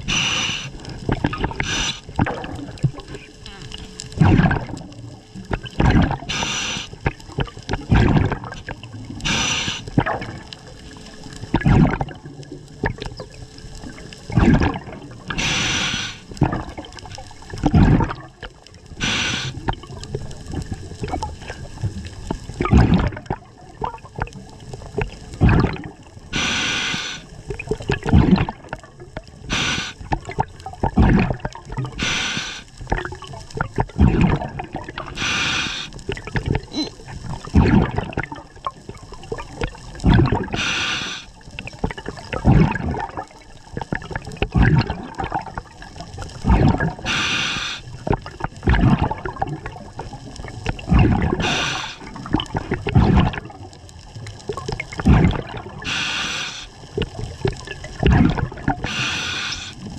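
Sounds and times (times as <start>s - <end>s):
regulator hiss on inhale: 0.0s - 1.0s, 1.6s - 2.2s, 6.3s - 7.1s, 9.2s - 10.0s, 15.3s - 16.3s, 19.0s - 19.6s, 26.3s - 27.4s, 29.5s - 30.1s, 32.0s - 32.8s, 35.1s - 36.0s, 40.5s - 41.4s, 47.0s - 48.0s, 51.4s - 52.1s, 55.8s - 56.9s, 58.8s - 59.9s
gurgling exhaled bubbles: 0.0s - 59.9s.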